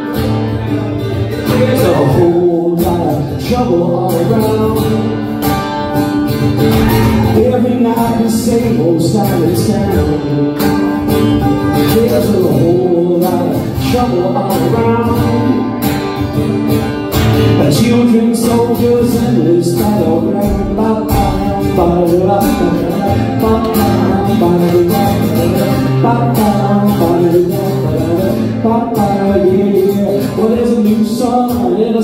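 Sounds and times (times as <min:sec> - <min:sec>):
man singing into a microphone: 0:00.0 - 0:06.0, 0:06.6 - 0:16.2, 0:17.3 - 0:32.0
acoustic guitar strumming: 0:00.0 - 0:32.0.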